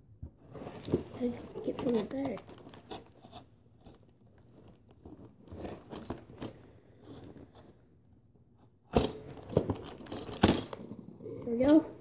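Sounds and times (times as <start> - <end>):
packaging rustling and crinkling: 0.5 - 7.8, 9.0 - 10.9.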